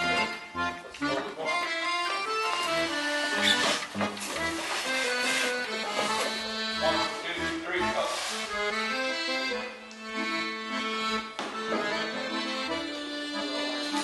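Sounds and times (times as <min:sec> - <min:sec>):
instrumental music with bass beat: 0:00.0 - 0:14.0.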